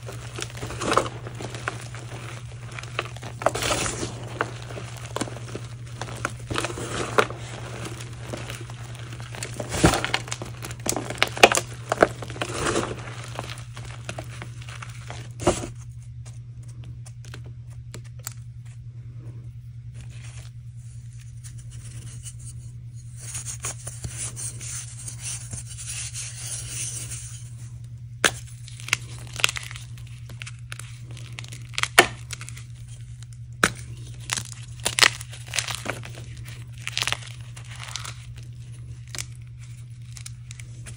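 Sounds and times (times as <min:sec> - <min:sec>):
crumbling powder hiss: 0:00.0 - 0:15.8
chalk crunching and crumbling: 0:00.0 - 0:18.0, 0:19.9 - 0:40.9
low steady hum: 0:00.0 - 0:40.9.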